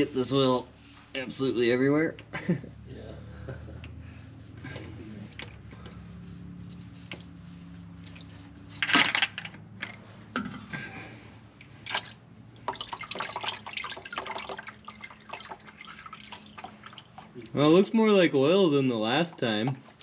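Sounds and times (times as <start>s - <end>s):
oil dripping into a pan: 11.6s - 17.6s.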